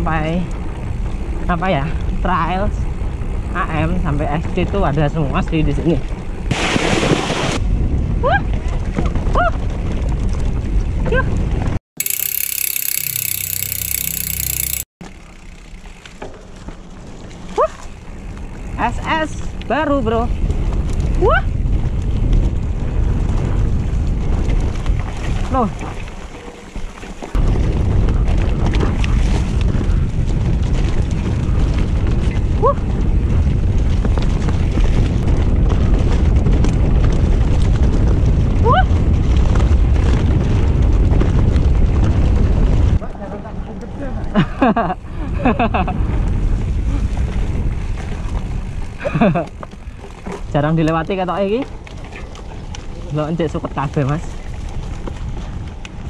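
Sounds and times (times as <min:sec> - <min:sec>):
mountain bike riding on dirt: 0:00.0 - 0:06.5, 0:07.6 - 0:56.0
outdoor ambience: 0:12.0 - 0:56.0
wind buffeting microphone: 0:18.5 - 0:26.2, 0:27.3 - 0:56.0.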